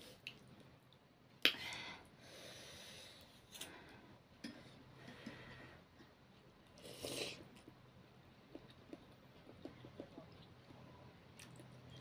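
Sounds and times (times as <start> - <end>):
soft breathy noise: 1.5 - 7.5.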